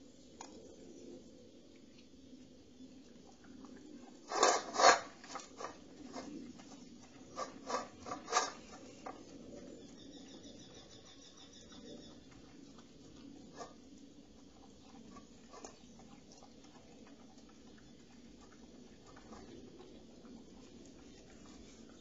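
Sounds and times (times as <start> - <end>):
dog eating from metal bowl: 3.1 - 9.8, 11.9 - 22.0.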